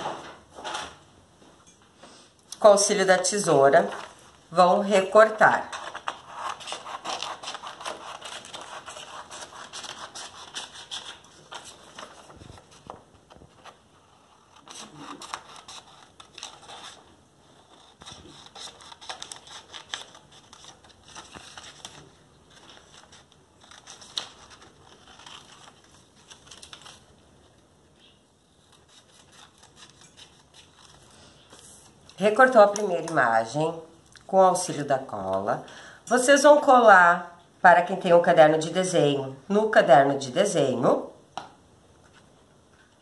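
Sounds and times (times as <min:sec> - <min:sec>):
paper rustling and crinkling: 0:03.8 - 0:04.4, 0:05.5 - 0:27.7, 0:28.4 - 0:33.0
scissors snipping paper: 0:05.7 - 0:12.1, 0:14.3 - 0:17.0, 0:17.7 - 0:22.1, 0:22.7 - 0:27.0, 0:28.7 - 0:31.0.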